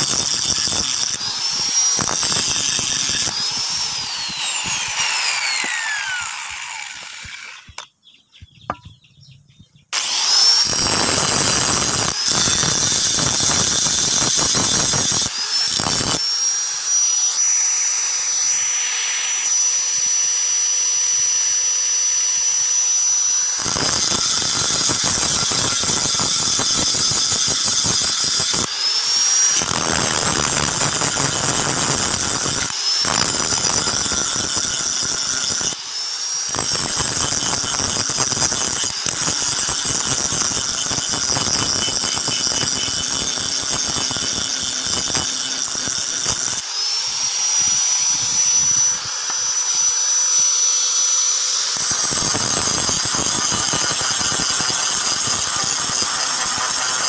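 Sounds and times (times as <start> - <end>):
angle grinder grinding steel: 0.0 - 8.0, 9.9 - 57.0.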